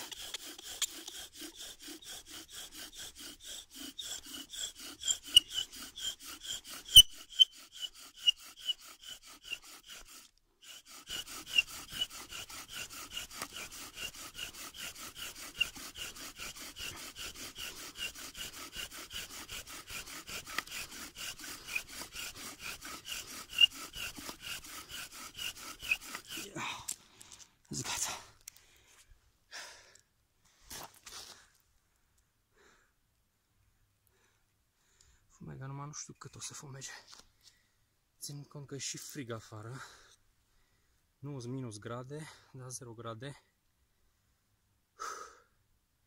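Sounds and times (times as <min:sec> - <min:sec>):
bow drill spindle squeaking and grinding: 0:00.0 - 0:26.6.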